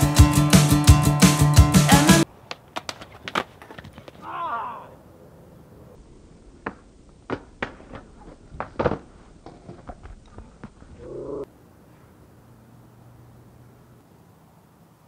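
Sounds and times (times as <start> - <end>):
skateboard clacking on concrete: 2.4 - 4.3, 6.6 - 10.7
person crying out: 4.2 - 5.0.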